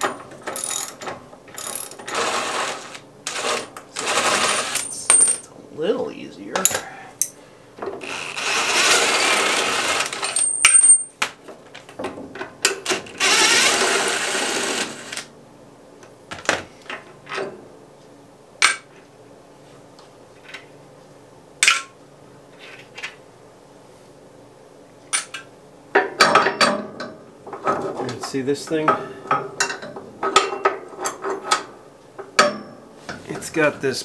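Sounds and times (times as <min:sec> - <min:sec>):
wrench clinking on metal: 0:04.7 - 0:05.5, 0:10.2 - 0:11.2.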